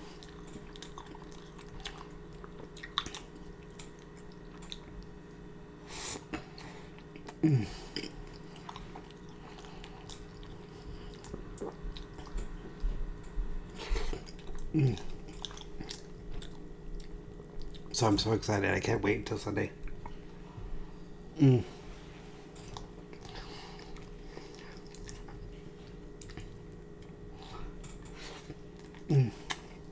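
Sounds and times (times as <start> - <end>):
open-mouthed chewing: 0.0 - 5.4, 6.0 - 18.0, 22.6 - 29.9
person humming: 7.3 - 8.1, 14.7 - 15.2, 21.4 - 21.8, 29.0 - 29.6.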